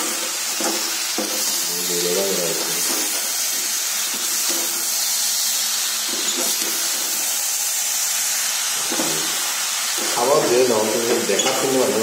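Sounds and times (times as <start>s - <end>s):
meat sizzling in a wok: 0.0s - 12.0s.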